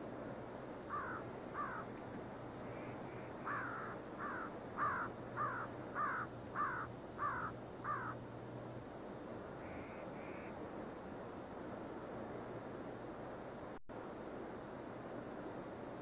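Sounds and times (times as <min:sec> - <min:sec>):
low steady hum: 0:00.0 - 0:16.0
crow cawing: 0:00.9 - 0:01.9, 0:03.4 - 0:08.2.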